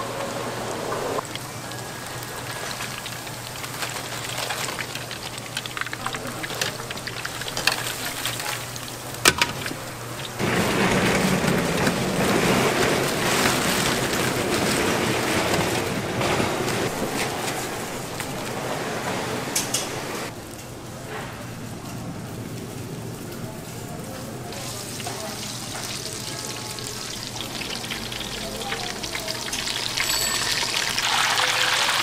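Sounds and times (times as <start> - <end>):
food frying sizzle: 1.2 - 10.6, 24.5 - 32.0.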